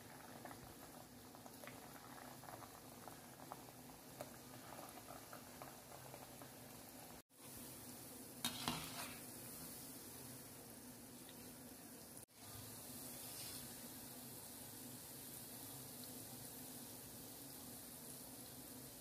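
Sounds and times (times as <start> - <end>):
oil bubbling and crackling: 0.0 - 19.0.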